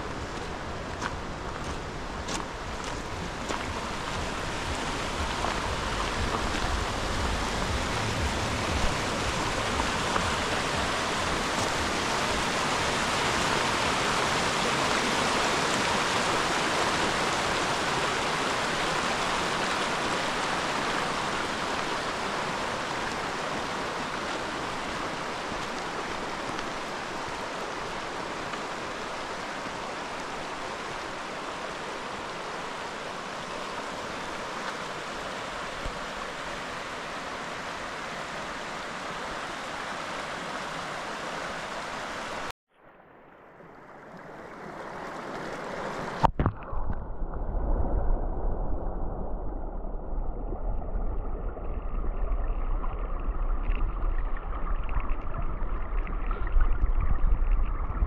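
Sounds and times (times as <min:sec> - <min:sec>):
low rumble: 0:00.0 - 0:12.4, 0:46.2 - 0:58.0
mountain stream rushing: 0:00.0 - 0:42.6, 0:43.4 - 0:46.6.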